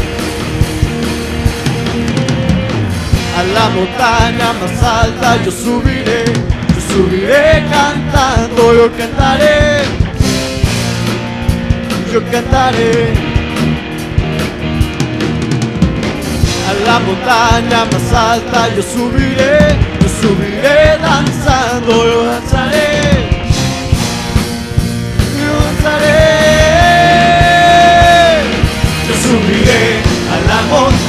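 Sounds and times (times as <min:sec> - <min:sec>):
band with drums: 0:00.0 - 0:31.0
young man singing: 0:03.2 - 0:10.0, 0:11.9 - 0:13.2, 0:16.5 - 0:23.4, 0:25.2 - 0:31.0.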